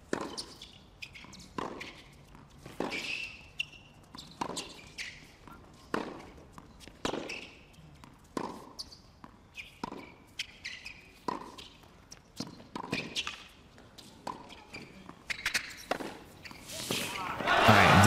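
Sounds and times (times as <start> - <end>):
racket hitting tennis ball: 5.9 - 6.3, 11.2 - 11.7, 14.2 - 16.2.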